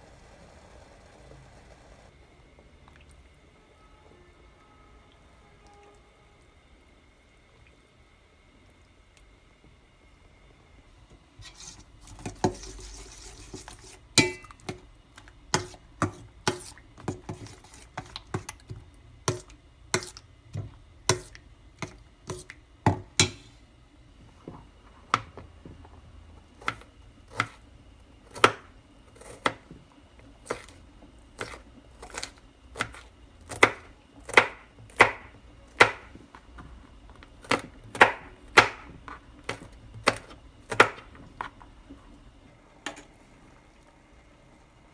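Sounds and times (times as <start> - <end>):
knife chopping on plastic board: 21.0 - 23.4, 26.6 - 27.6, 28.3 - 29.6, 31.4 - 36.1, 37.4 - 41.1.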